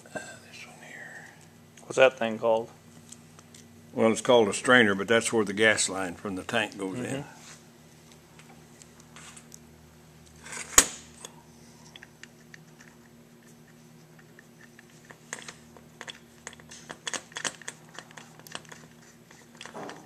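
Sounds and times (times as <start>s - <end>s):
metal parts clicking and tapping: 14.2s - 18.9s, 19.5s - 20.0s.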